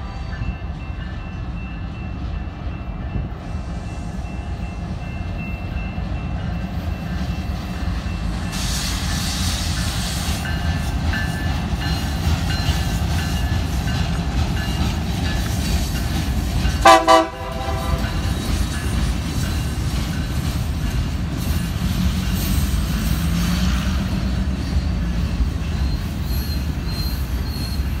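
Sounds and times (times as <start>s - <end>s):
locomotive engine rumble: 0.6s - 28.0s
air hiss: 8.3s - 10.6s
train horn toot: 16.8s - 18.3s.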